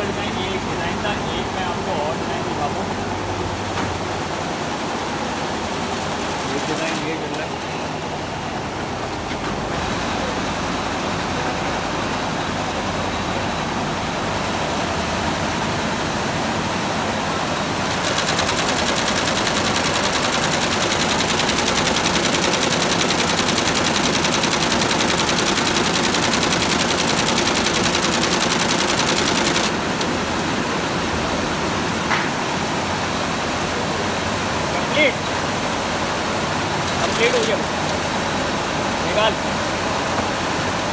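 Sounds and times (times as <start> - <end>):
embroidery machine rattling: 17.8 - 30.2, 36.8 - 38.2.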